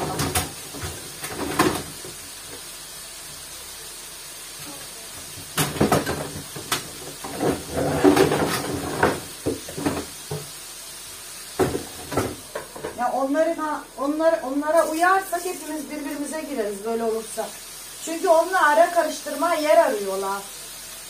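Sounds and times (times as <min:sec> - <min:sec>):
kitchen clatter: 0:00.0 - 0:02.2, 0:05.2 - 0:10.6, 0:11.6 - 0:13.2
kitchen items knocking and clicking: 0:00.0 - 0:02.2, 0:05.4 - 0:10.5, 0:11.6 - 0:13.0.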